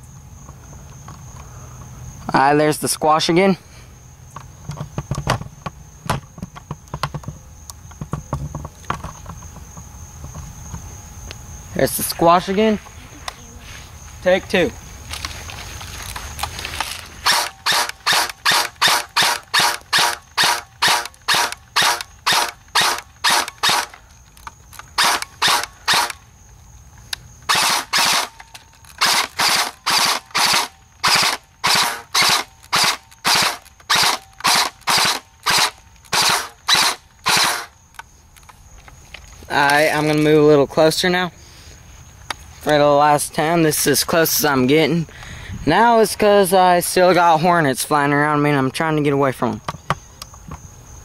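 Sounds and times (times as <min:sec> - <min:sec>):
airsoft rifle single shots: 0:29.0 - 0:37.7.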